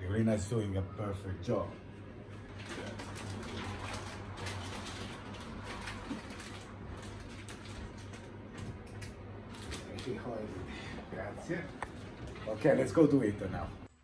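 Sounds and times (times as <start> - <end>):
steady low hum: 0.0 - 14.0
paper rustling and crinkling: 2.5 - 8.8, 9.4 - 10.4.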